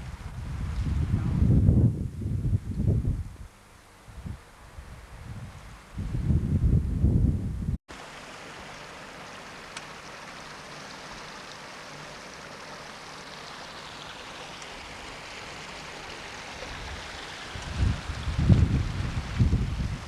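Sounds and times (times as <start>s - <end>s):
wind buffeting microphone: 0.0s - 3.5s, 4.1s - 7.8s, 16.7s - 20.0s
stream rushing over stones: 7.9s - 20.0s.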